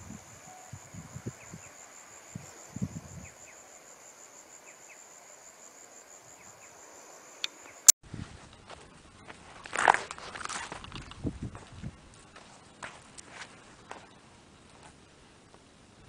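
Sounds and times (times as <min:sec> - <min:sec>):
high-pitched insect trill: 0:00.0 - 0:07.9.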